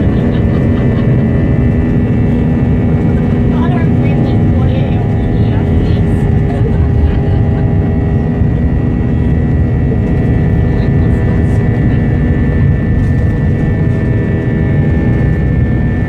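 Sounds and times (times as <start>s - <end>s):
jet engine hum and whine: 0.0s - 16.0s
low rumble: 0.0s - 16.0s.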